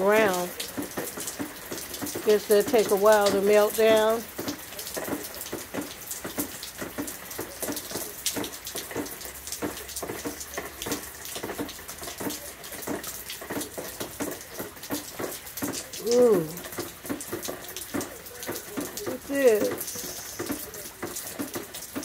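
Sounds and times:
rain on concrete patio: 0:00.0 - 0:22.0
person saying ooh: 0:16.0 - 0:16.6.

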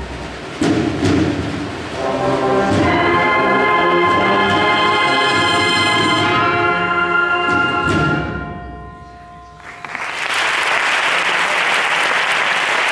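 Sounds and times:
bugle and drum band playing: 0:00.0 - 0:09.0
audience applause: 0:09.6 - 0:12.9.

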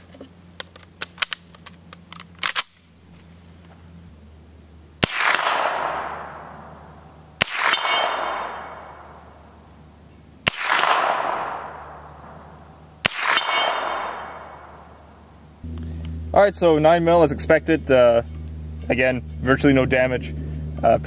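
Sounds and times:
gunshots: 0:05.0 - 0:06.8, 0:07.4 - 0:09.3, 0:10.4 - 0:14.9.

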